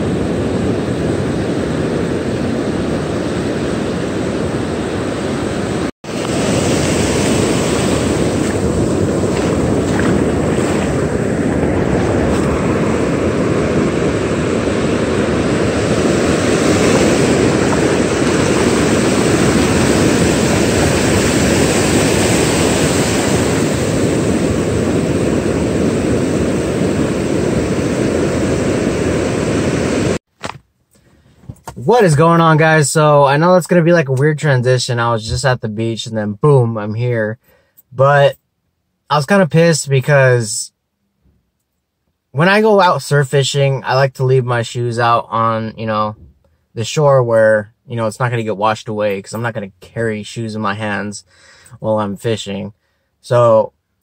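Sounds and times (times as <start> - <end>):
breaking surf: 0.0 - 30.2
wind on microphone: 0.0 - 30.2.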